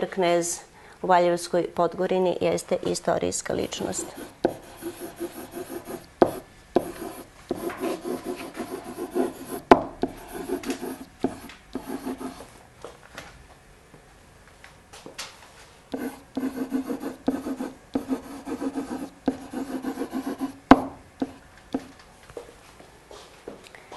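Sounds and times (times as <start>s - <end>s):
pen scratching on whiteboard: 3.7s - 12.5s, 16.0s - 20.6s, 21.2s - 21.9s
pen tapping on board: 4.1s - 12.4s, 16.0s - 21.9s.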